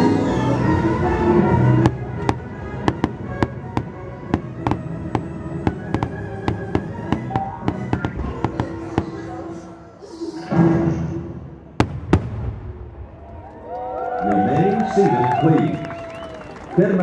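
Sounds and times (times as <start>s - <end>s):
orchestral music: 0.0s - 12.7s
fireworks popping and banging: 1.8s - 9.3s, 11.8s - 12.8s.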